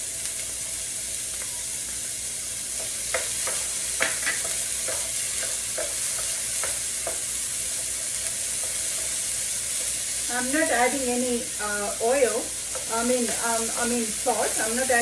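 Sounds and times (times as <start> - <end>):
vegetables sizzling in skillet: 0.0 - 15.0
spatula scraping and tapping pan: 2.8 - 11.1, 12.3 - 15.0.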